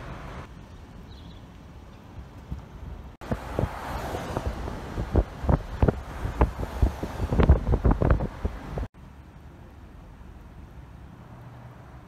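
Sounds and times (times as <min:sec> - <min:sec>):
wind buffeting microphone: 0:02.2 - 0:08.9.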